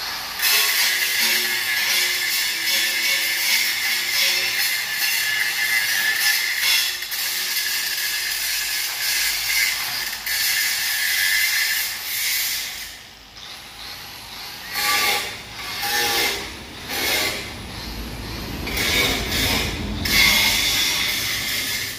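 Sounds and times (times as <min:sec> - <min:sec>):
angle grinder grinding steel: 0:00.0 - 0:21.9.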